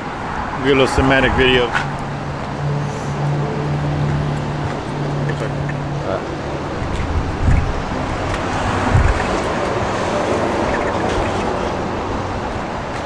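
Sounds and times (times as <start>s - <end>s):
wind buffeting microphone: 0.4s - 13.0s
low gust thumps: 1.2s - 10.0s
low hum: 1.9s - 12.8s.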